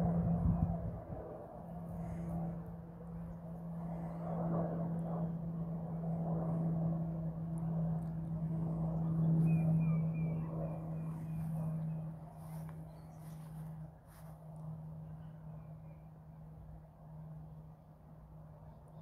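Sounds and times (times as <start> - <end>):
distant aircraft drone: 0.0 - 19.0
bird chirping: 9.0 - 13.5.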